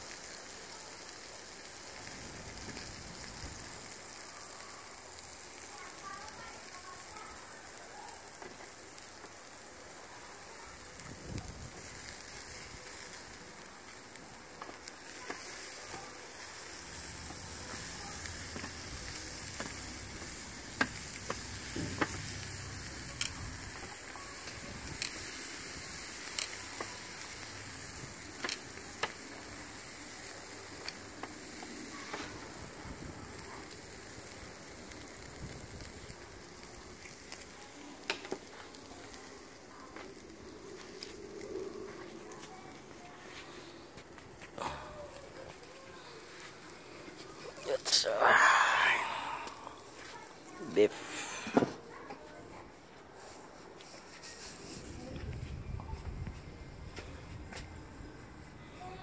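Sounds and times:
meat sizzling on a grill: 0.0s - 59.0s.

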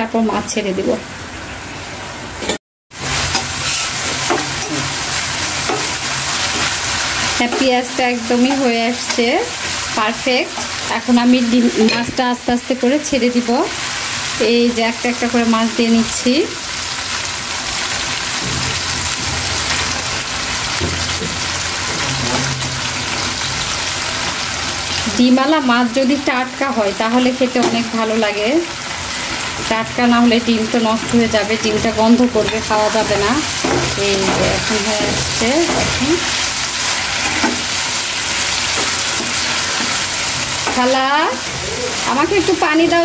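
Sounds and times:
masala sizzling in oil: 0.1s - 43.0s
spatula scraping metal pan: 3.3s - 4.7s.

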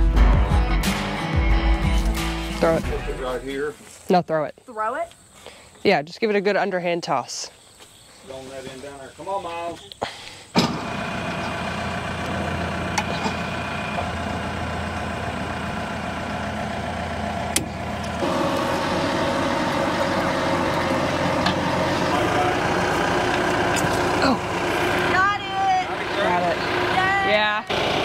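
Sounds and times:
diesel engine idling: 9.2s - 28.0s.

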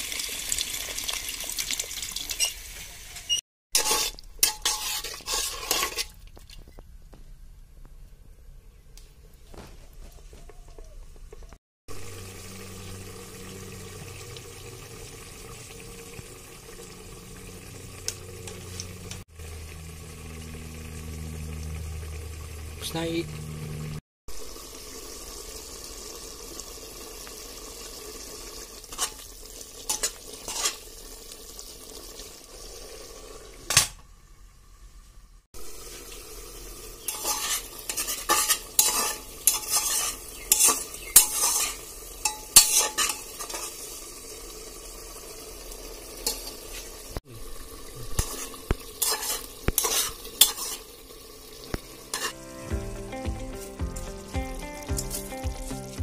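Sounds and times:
curry sizzling and bubbling: 0.0s - 7.4s, 8.7s - 56.0s
metal ladle scraping a pot: 3.8s - 6.2s, 28.9s - 29.2s, 29.9s - 30.8s, 37.0s - 43.8s, 48.2s - 50.9s, 52.1s - 52.4s.

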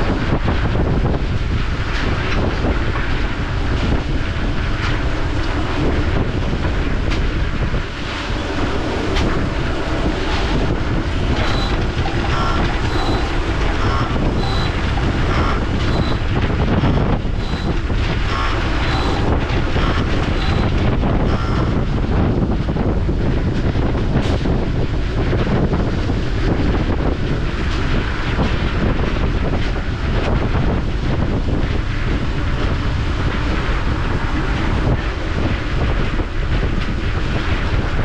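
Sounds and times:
heavy vehicle engine running: 0.0s - 38.0s
wind on microphone: 0.0s - 38.0s
high electronic beeps: 11.4s - 16.3s, 17.4s - 21.7s.

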